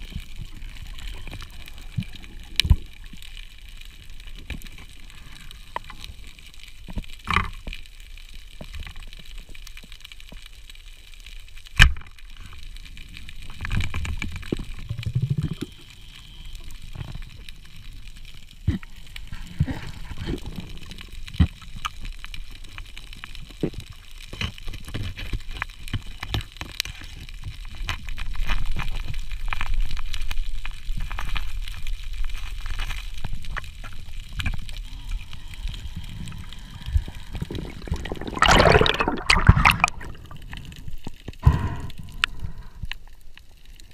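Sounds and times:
underwater low rumble: 0.0 - 26.2, 27.0 - 43.9
underwater clicks and knocks: 6.9 - 7.8, 37.5 - 40.7
rush of water: 35.8 - 40.6.

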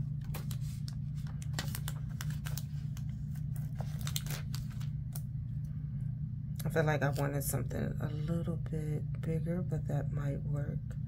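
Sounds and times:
paper and plastic crinkling: 0.0 - 5.3
steady low hum: 0.0 - 11.0.

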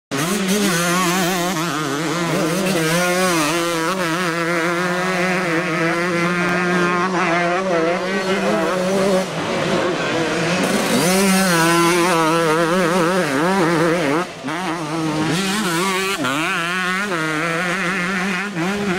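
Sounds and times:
motocross bike engine revving: 0.1 - 18.9.

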